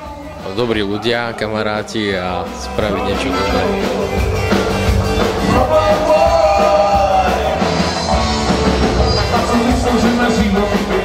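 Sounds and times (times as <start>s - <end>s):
live rock band playing: 0.0s - 11.0s
trombone and trumpet: 2.8s - 4.1s.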